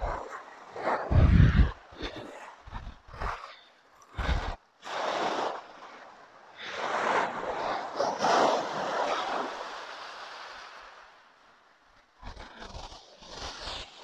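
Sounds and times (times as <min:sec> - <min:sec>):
wind gust on microphone: 0:00.0 - 0:05.9
waves washing up shingle beach: 0:04.2 - 0:11.4.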